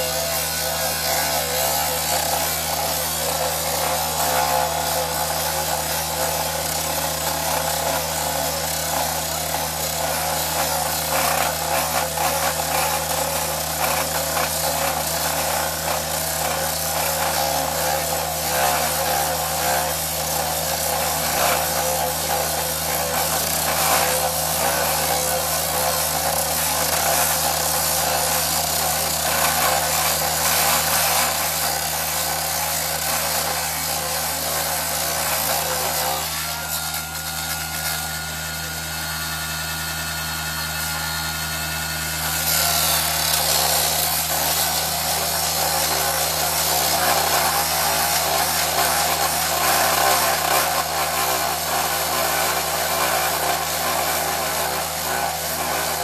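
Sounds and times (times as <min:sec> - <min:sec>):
rail saw grinding steel: 0:00.0 - 0:56.0.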